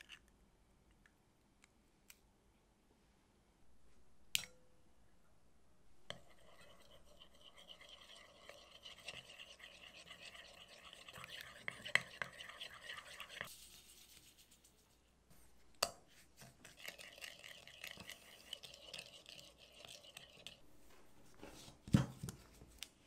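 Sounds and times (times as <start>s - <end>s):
soft scraping in a bowl: 6.1s - 21.8s.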